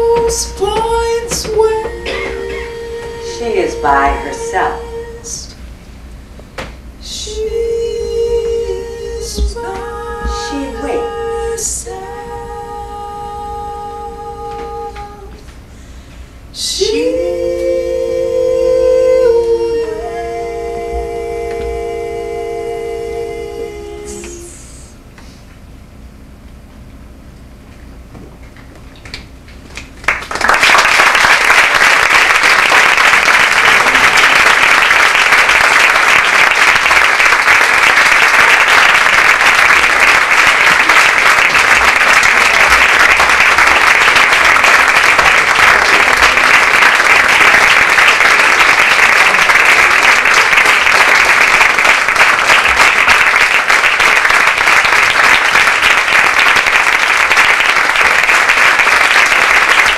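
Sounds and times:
audience applauding: 0:29.8 - 0:59.9.

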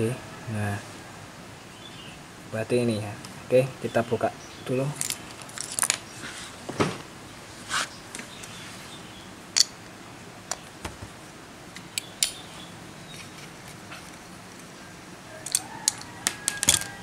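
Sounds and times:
metal part clicks: 0:15.4 - 0:17.0.

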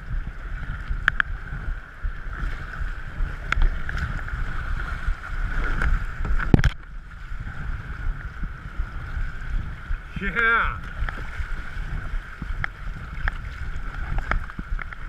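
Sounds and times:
wind buffeting microphone: 0:00.0 - 0:15.0
paddle blades dipping in water: 0:00.1 - 0:15.0.

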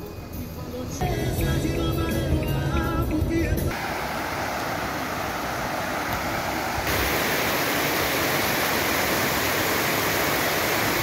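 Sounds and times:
stormwater rushing across street: 0:03.7 - 0:11.0.

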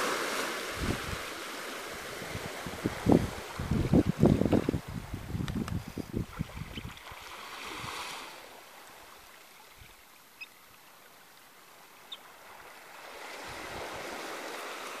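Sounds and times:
small waves washing over sand: 0:00.0 - 0:15.0
shorebirds peeping: 0:05.9 - 0:07.7, 0:08.6 - 0:13.4.

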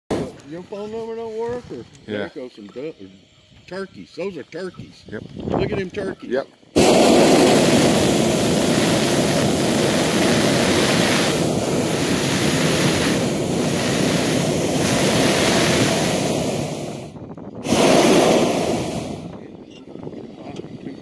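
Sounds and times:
wind buffeting microphone: 0:04.8 - 0:06.2, 0:06.8 - 0:21.0.

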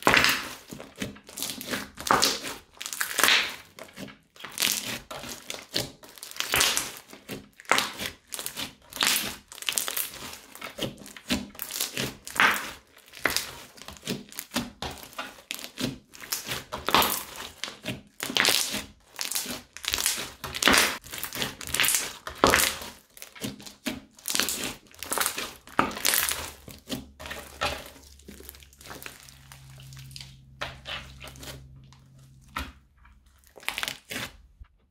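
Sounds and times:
crunchy slime being squeezed: 0:00.0 - 0:34.6.

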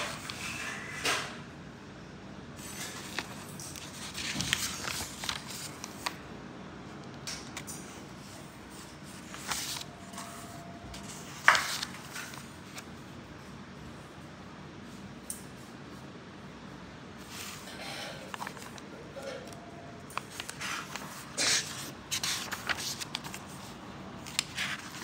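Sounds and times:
paper pages rustling: 0:00.0 - 0:00.6, 0:02.6 - 0:06.2, 0:07.4 - 0:13.0, 0:17.2 - 0:25.0.

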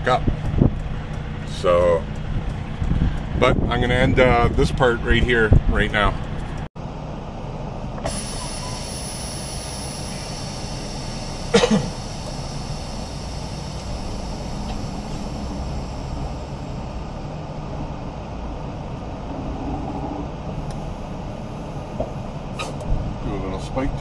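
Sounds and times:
diesel truck engine running: 0:00.0 - 0:19.4, 0:20.2 - 0:24.0
person coughing: 0:11.5 - 0:12.0.

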